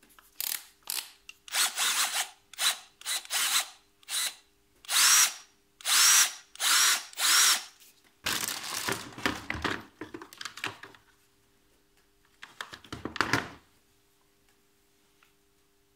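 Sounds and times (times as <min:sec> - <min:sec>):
cordless drill whine: 0:01.5 - 0:07.7
hard plastic knocks and rattles: 0:08.3 - 0:11.0.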